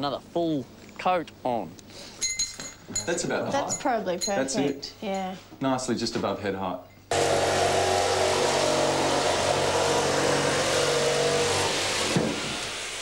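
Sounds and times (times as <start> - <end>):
power drill drilling into wall: 7.1 - 13.0.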